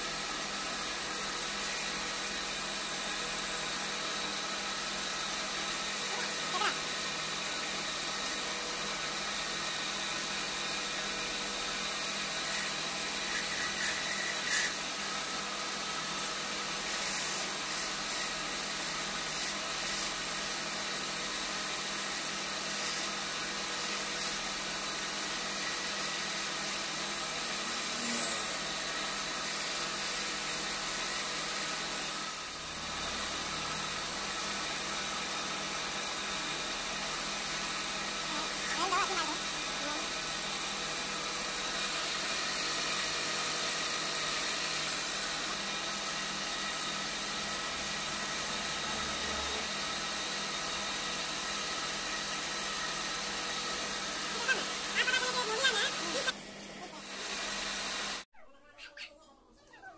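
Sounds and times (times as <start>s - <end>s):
chisel cutting spinning wood: 10.6s - 15.0s, 27.4s - 28.7s.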